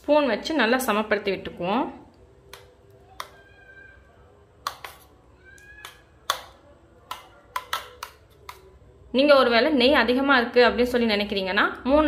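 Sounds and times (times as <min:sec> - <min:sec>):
spoon tapping and scraping metal bowl: 0:04.6 - 0:05.1.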